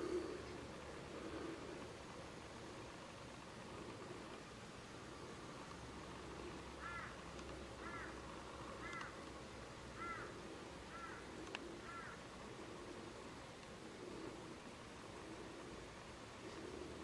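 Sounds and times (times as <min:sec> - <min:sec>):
background hiss: 0:00.0 - 0:17.0
bird calling harshly: 0:06.8 - 0:07.2, 0:09.9 - 0:12.2
faint click: 0:11.4 - 0:11.7.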